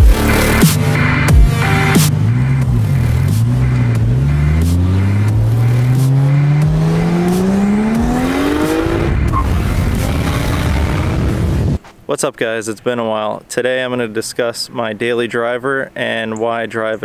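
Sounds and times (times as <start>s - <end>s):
car engine accelerating hard: 0.0s - 11.8s.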